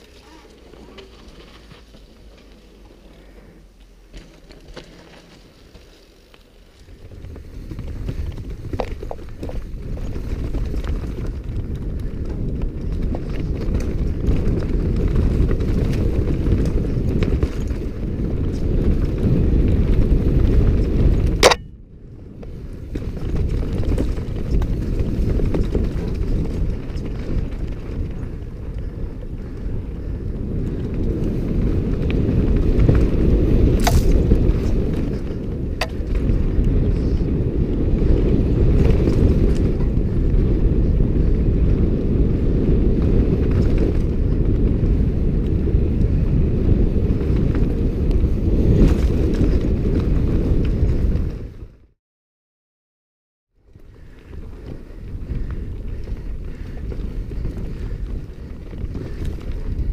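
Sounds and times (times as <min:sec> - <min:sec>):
bike tyres on rock: 0:00.0 - 0:51.7, 0:53.7 - 0:59.9
wind buffeting microphone: 0:06.7 - 0:51.9, 0:53.6 - 0:59.9
sharp click: 0:21.4 - 0:21.7.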